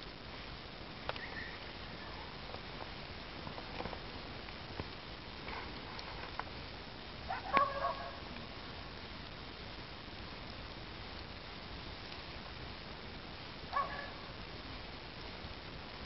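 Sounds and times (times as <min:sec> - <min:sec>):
bonfire crackling: 0:00.0 - 0:16.0
fire pops: 0:00.1 - 0:08.6.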